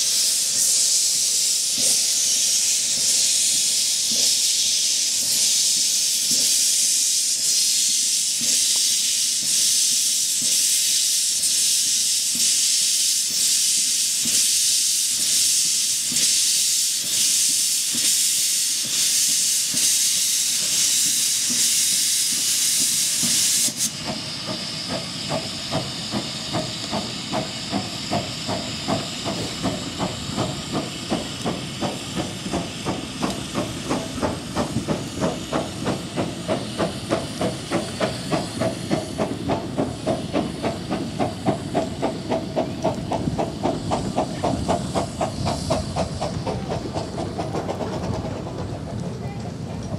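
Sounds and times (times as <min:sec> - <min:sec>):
steam hissing: 0:00.0 - 0:49.9
steam locomotive chuffing: 0:00.0 - 0:49.9.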